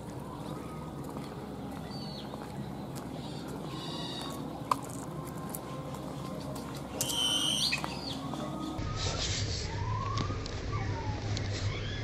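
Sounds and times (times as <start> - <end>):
grackle whistling call: 7.0 - 12.0.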